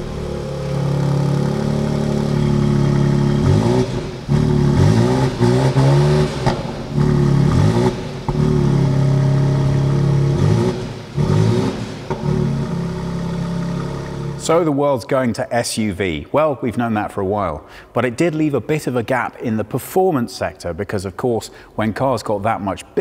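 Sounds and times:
car engine idling and revving: 0:00.0 - 0:14.4.

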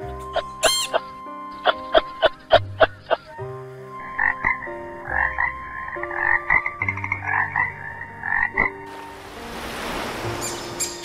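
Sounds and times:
toads croaking: 0:00.2 - 0:08.9.

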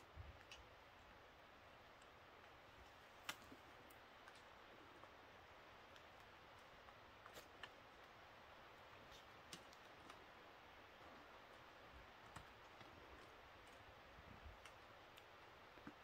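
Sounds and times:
faint clicks: 0:00.3 - 0:01.1.

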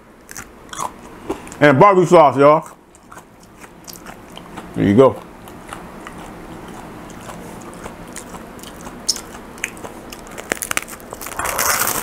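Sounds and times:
wet chewing clicks: 0:00.2 - 0:01.6, 0:02.6 - 0:12.0
sandwich crunching: 0:02.6 - 0:12.0.

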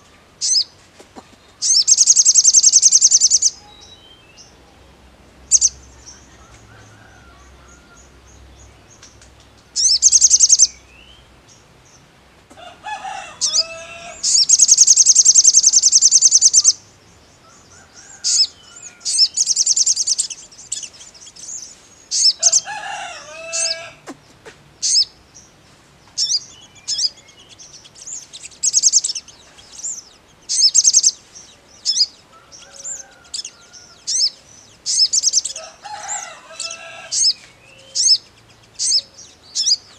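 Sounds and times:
lower bird calls: 0:00.0 - 0:11.4, 0:12.6 - 0:39.9
bird singing fast trills: 0:00.4 - 0:00.7, 0:01.6 - 0:04.6, 0:05.4 - 0:06.4, 0:09.7 - 0:12.0, 0:13.4 - 0:23.9, 0:24.8 - 0:25.6, 0:26.2 - 0:39.9.

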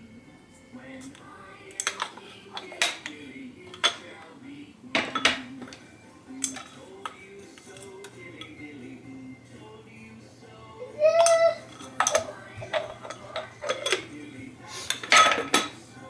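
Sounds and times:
background music: 0:00.0 - 0:16.0
glass jars clinking: 0:01.8 - 0:04.2, 0:04.9 - 0:08.6, 0:11.2 - 0:14.2, 0:14.9 - 0:15.8.

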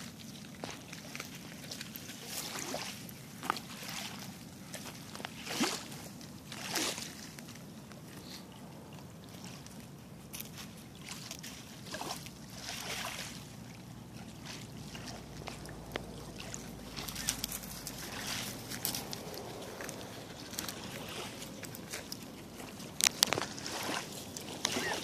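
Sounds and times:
small waves lapping on shore: 0:00.0 - 0:25.0
water splashing: 0:00.0 - 0:25.0
crunches on gravel: 0:15.3 - 0:25.0.

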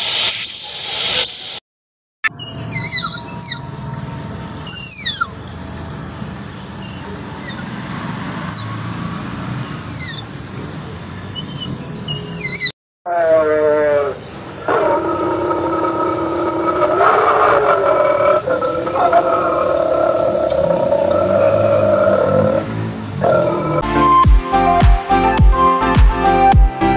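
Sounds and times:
tapir shrill whistles: 0:02.2 - 0:03.6, 0:04.6 - 0:05.4, 0:06.8 - 0:07.6, 0:08.2 - 0:08.7, 0:09.6 - 0:10.3, 0:11.4 - 0:12.7, 0:17.3 - 0:18.7
steady multi-tone pitched sound: 0:14.4 - 0:23.2.

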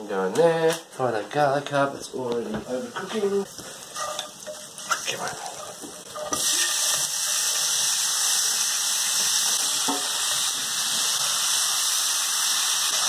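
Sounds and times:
spices sizzling in hot oil: 0:02.7 - 0:13.0.

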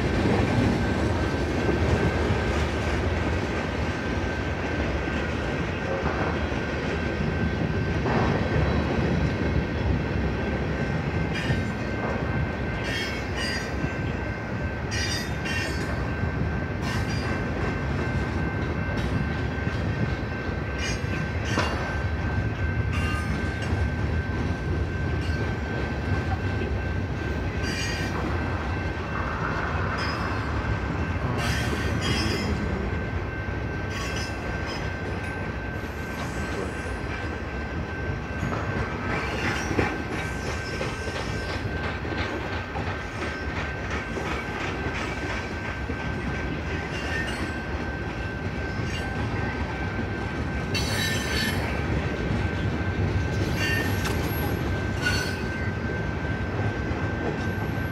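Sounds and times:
freight train rumbling past: 0:00.0 - 0:57.9
train wheel clicks: 0:38.4 - 0:49.4, 0:53.3 - 0:55.6.

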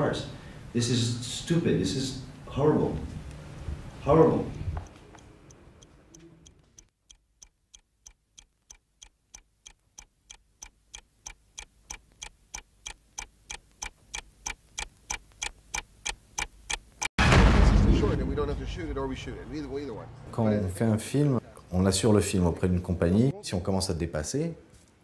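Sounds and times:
clock-like ticking: 0:04.4 - 0:17.1.

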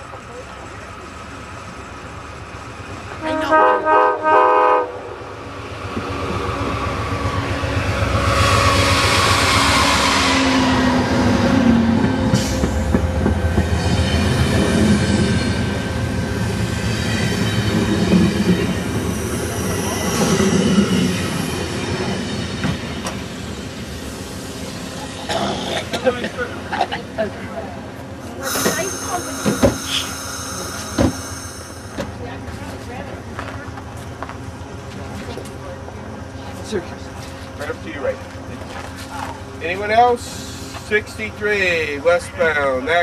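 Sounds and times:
diesel locomotive engine passing: 0:00.0 - 0:43.0
locomotive horn blasts: 0:03.2 - 0:05.2.

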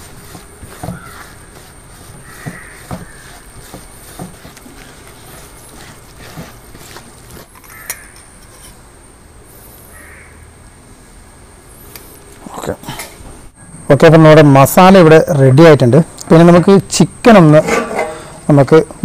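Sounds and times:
hand kneading wet paste: 0:00.0 - 0:08.0.

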